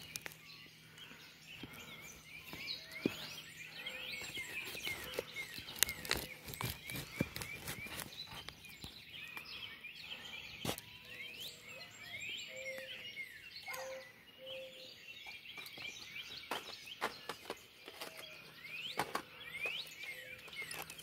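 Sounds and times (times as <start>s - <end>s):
songbirds chirping: 0.0s - 21.0s.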